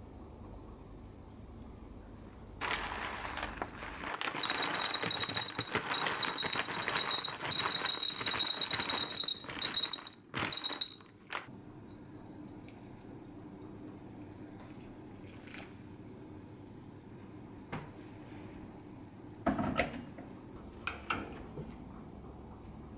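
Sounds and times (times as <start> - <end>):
dry kibble rattling into a bowl: 2.6 - 11.5.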